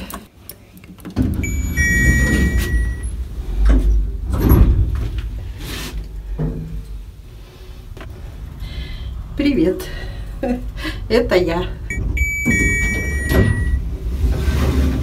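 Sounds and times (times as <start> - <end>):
lift doors sliding: 1.2 - 5.5, 11.8 - 15.0
lift car rumbling: 1.3 - 5.6, 6.2 - 15.0
electronic beep: 1.4 - 3.1, 11.9 - 13.8.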